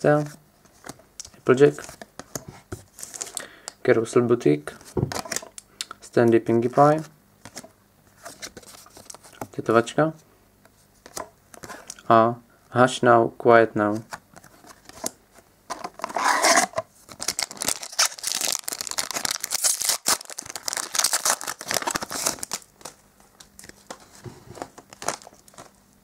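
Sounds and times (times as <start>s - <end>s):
foil pack tearing and crinkling: 16.2s - 23.0s, 24.6s - 25.7s.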